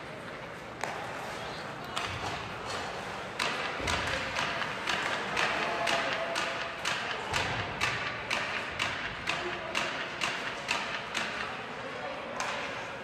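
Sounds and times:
arena crowd murmur: 0.0 - 13.0
sharp knocks: 3.4 - 11.5.

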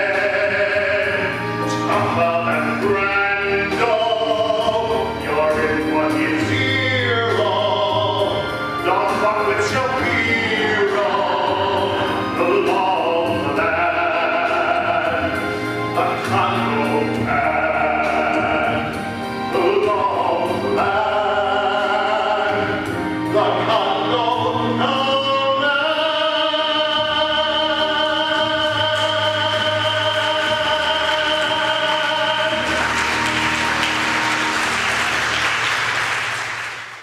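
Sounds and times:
man singing show tune: 0.0 - 34.1
musical accompaniment: 0.0 - 37.0
audience applause: 30.9 - 37.0.

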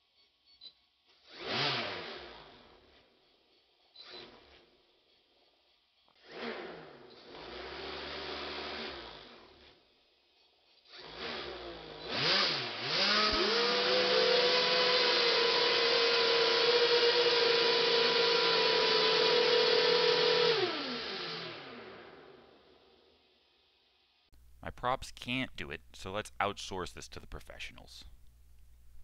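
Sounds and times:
electric motors whining: 1.2 - 23.3.

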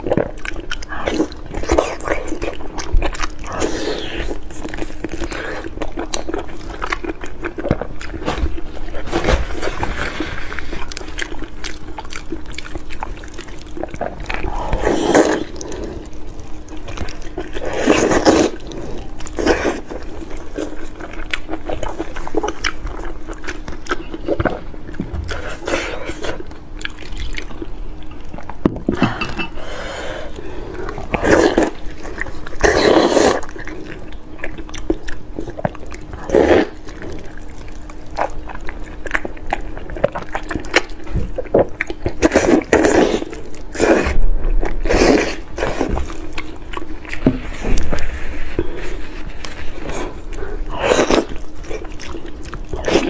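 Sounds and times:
wet chewing and lip smacking: 0.0 - 9.0, 10.4 - 28.7, 30.8 - 53.0
faint steady hum: 0.0 - 53.0.

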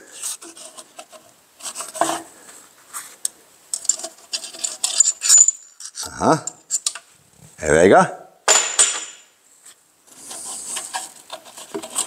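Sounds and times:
metal rod scraping and clicking: 3.7 - 7.0.

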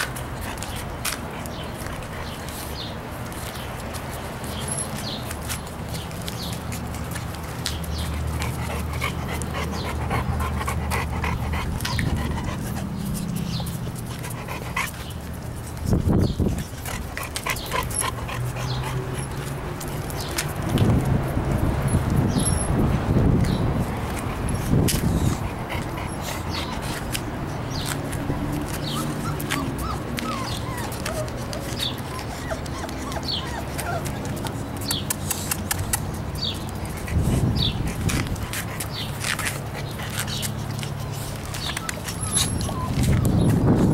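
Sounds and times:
claws ticking on concrete: 0.0 - 43.9
puppies panting: 0.0 - 43.9.

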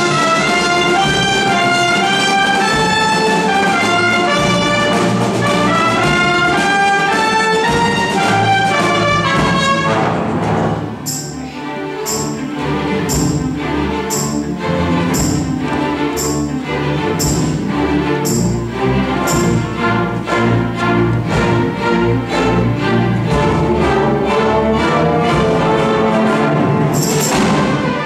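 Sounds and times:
symphony orchestra playing: 0.0 - 28.0
crisp high beat: 11.0 - 20.4.

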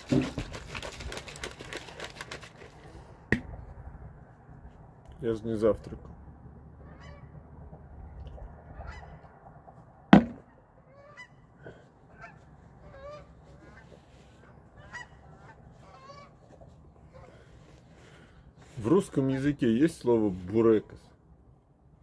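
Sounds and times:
geese honking: 6.8 - 7.3, 8.7 - 9.2, 10.5 - 11.4, 12.1 - 16.4.

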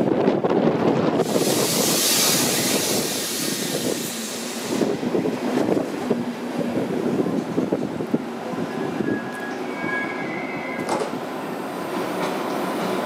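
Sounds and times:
train coaches rumbling past: 0.0 - 13.0
locomotive hissing past: 1.2 - 5.4.

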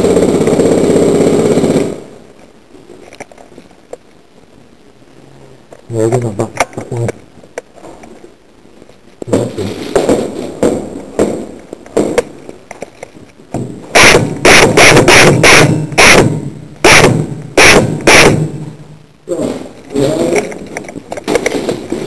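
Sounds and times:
rustling and knocks: 9.2 - 13.9, 19.4 - 22.0
airsoft gun shots: 13.9 - 18.8.

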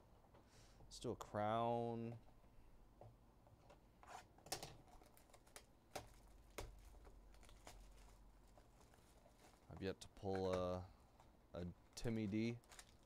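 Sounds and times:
light crinkling and scraping: 3.5 - 13.0.

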